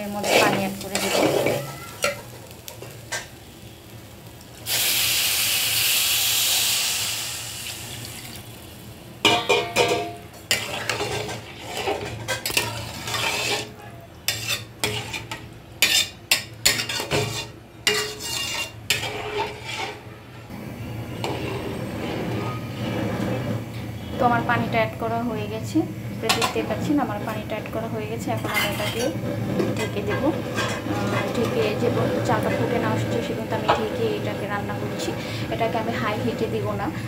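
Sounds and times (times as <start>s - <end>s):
spatula scraping and knocking pot: 0.0s - 3.3s, 9.3s - 20.1s, 21.2s - 24.2s, 28.3s - 35.2s
water hissing in hot pot: 4.6s - 8.9s.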